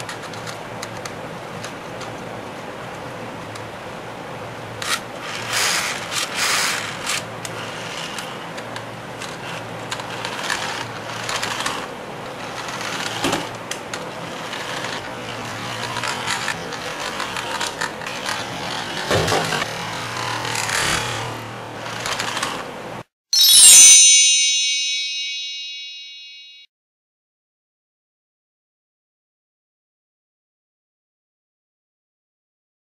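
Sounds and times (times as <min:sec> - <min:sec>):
small electric motor whirring: 0:04.9 - 0:08.2
plastic clattering and scraping: 0:17.0 - 0:21.0.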